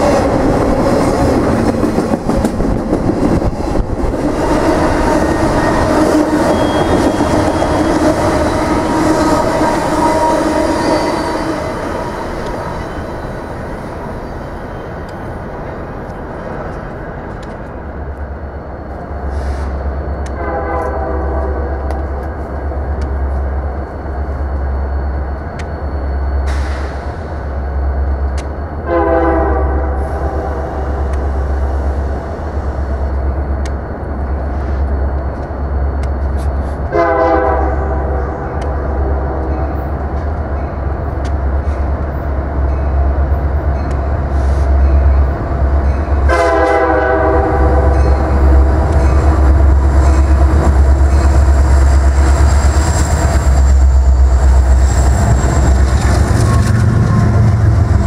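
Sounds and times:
train rumbling: 0:00.0 - 0:58.0
locomotive air horn blasts: 0:20.3 - 0:21.8, 0:28.9 - 0:30.8, 0:36.9 - 0:39.4, 0:46.3 - 0:48.9.

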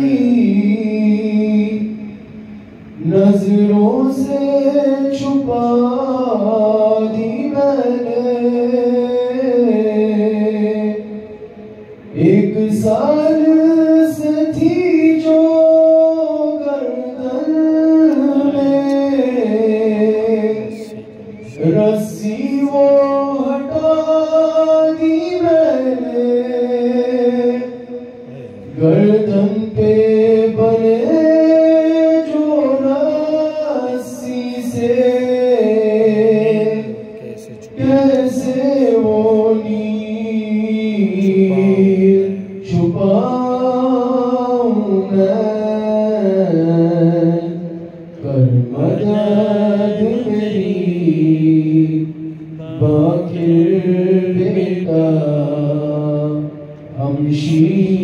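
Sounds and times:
man reciting lament into microphone: 0:00.0 - 0:58.0.

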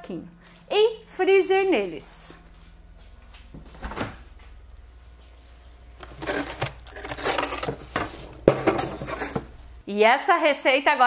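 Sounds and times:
plastic bags rustling: 0:05.6 - 0:09.8.

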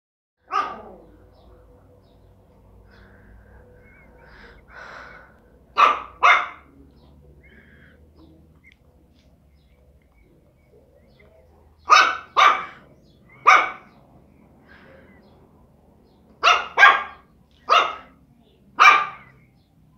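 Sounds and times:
small dog barking: 0:00.4 - 0:01.1, 0:05.8 - 0:06.7, 0:11.8 - 0:12.8, 0:13.4 - 0:14.0, 0:16.4 - 0:18.2, 0:18.8 - 0:19.4.

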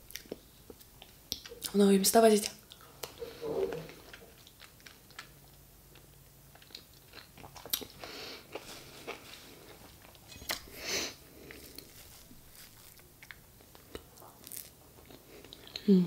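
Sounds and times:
wet chewing: 0:02.7 - 0:15.9.

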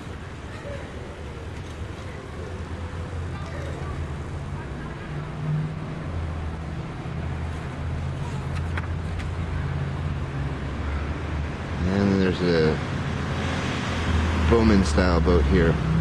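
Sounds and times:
book page rustling: 0:08.4 - 0:09.3.

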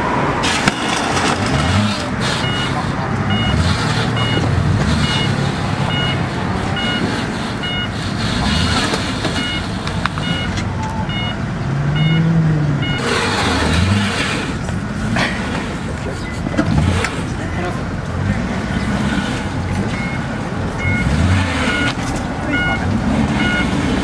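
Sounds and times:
voices: 0:00.0 - 0:24.0
car engine idling: 0:00.5 - 0:24.0
high electronic beeps: 0:02.4 - 0:11.4, 0:12.0 - 0:13.4, 0:19.9 - 0:23.8.

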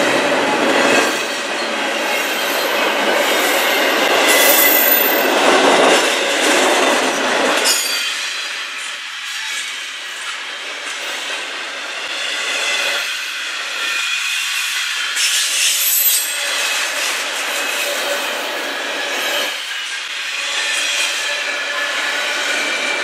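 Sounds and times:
train wheels running on rails: 0:00.0 - 0:23.0
high wheel squeal: 0:00.8 - 0:05.3, 0:12.8 - 0:23.0.

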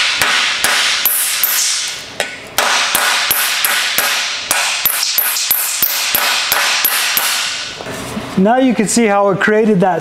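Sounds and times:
hammer striking sheet steel: 0:00.0 - 0:07.8.

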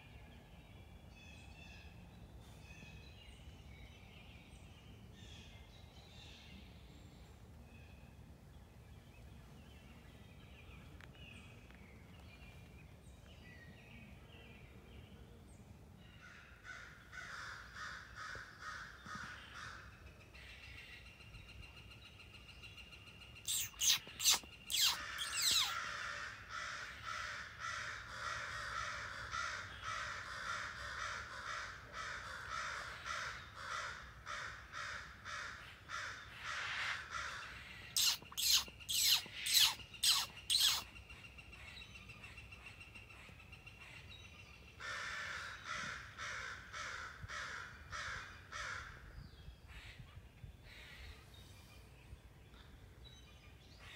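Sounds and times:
crows cawing: 0:16.2 - 0:19.8, 0:23.5 - 0:40.8, 0:44.8 - 0:48.9.

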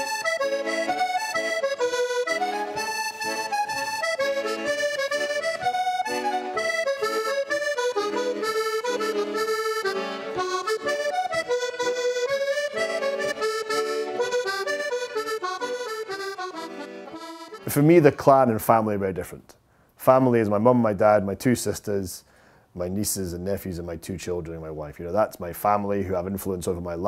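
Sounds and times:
accordion playing dance tune: 0:00.0 - 0:18.6.

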